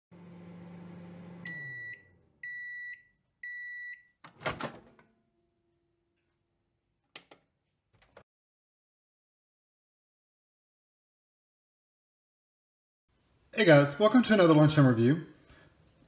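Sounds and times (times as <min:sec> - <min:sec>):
microwave oven humming: 0:00.1 - 0:02.7
microwave beeps: 0:01.1 - 0:04.2.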